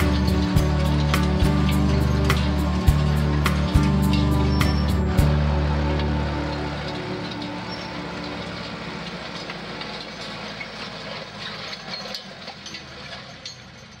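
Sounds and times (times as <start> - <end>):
metal parts rattling and clicking: 0.0 - 5.1, 9.2 - 14.0
tractor engine running: 0.0 - 14.0.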